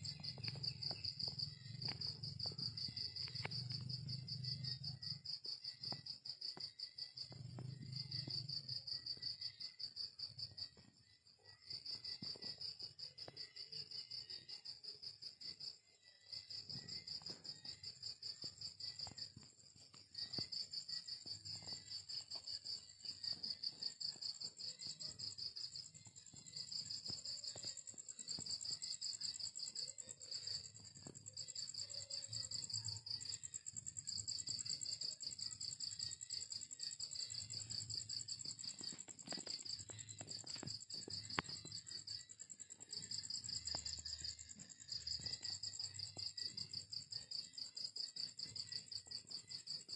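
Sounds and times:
crickets chirping: 0:00.0 - 0:49.9
high continuous insect buzz: 0:11.4 - 0:49.9.

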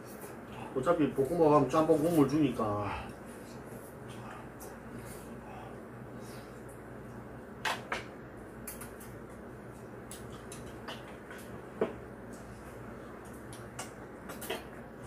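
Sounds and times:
steady low hum: 0:00.0 - 0:15.0
chopsticks clicking on rice bowls: 0:08.6 - 0:11.6, 0:13.2 - 0:14.8.

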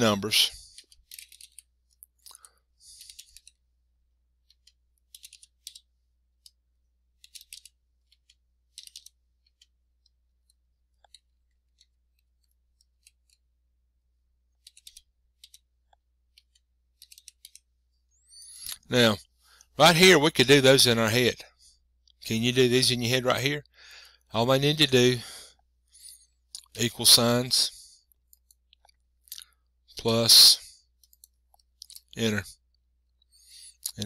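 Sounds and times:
faint keyboard typing: 0:00.0 - 0:03.7, 0:04.3 - 0:13.6, 0:14.4 - 0:19.8, 0:28.0 - 0:34.0.

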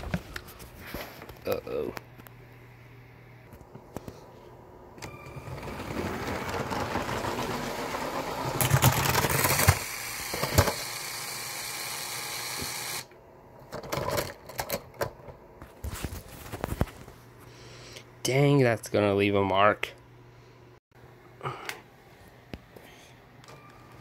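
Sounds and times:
toy train motor whirring: 0:05.6 - 0:13.1
clatter of toy impacts: 0:08.5 - 0:10.9.

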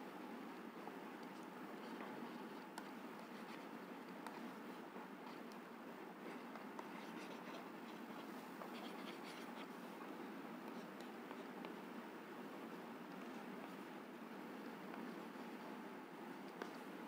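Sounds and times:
stylus tapping and scratching: 0:01.2 - 0:11.8.

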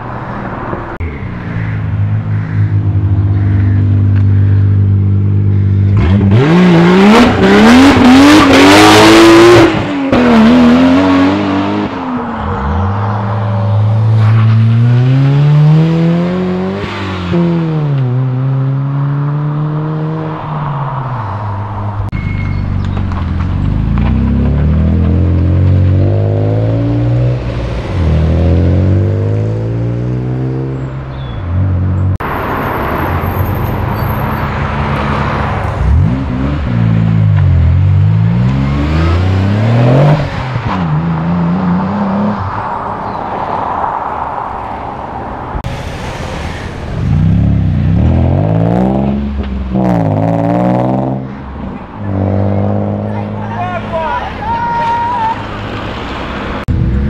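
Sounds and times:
car engines accelerating hard: 0:00.0 - 0:22.1, 0:22.8 - 0:45.7, 0:46.4 - 0:54.6.

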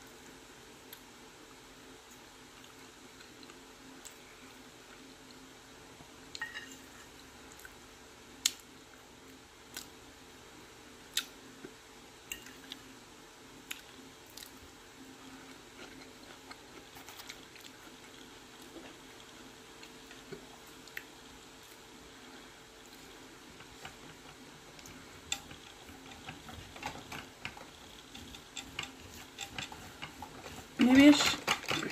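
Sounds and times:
steady low hum: 0:00.0 - 0:31.9
metal fork clinking on plate: 0:06.4 - 0:06.8
chewing: 0:13.7 - 0:22.0, 0:22.8 - 0:31.9.

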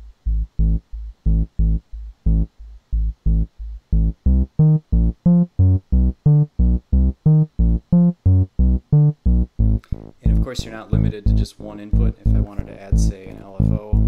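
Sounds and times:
synthesizer playing short notes: 0:03.3 - 0:13.9.

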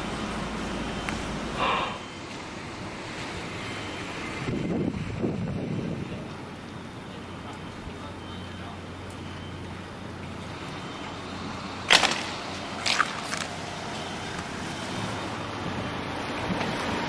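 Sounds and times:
wind on microphone: 0:04.4 - 0:06.4.

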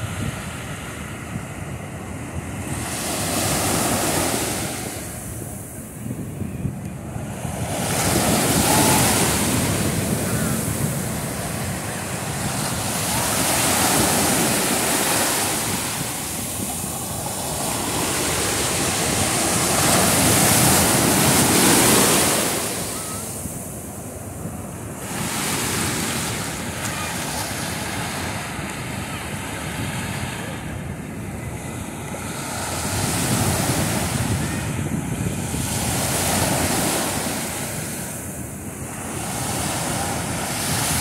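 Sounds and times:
ocean surf breaking on beach: 0:00.0 - 0:41.0.

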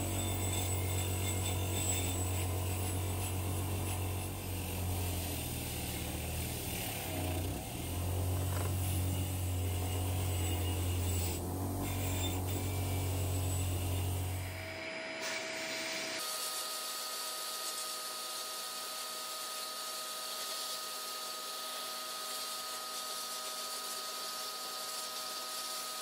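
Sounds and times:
electric tool motor humming: 0:00.0 - 0:26.0.

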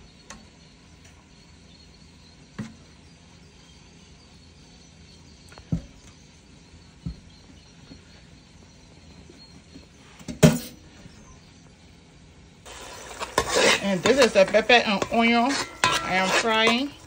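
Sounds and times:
whisk stirring thick mix in bowl: 0:12.7 - 0:17.0
whisk knocking against metal bowl: 0:13.4 - 0:17.0.

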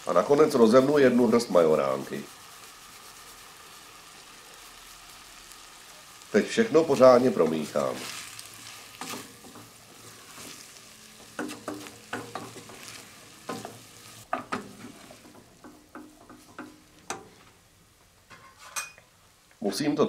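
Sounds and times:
faint sizzle: 0:00.0 - 0:20.0
spatula knocking a pot: 0:11.2 - 0:17.3.

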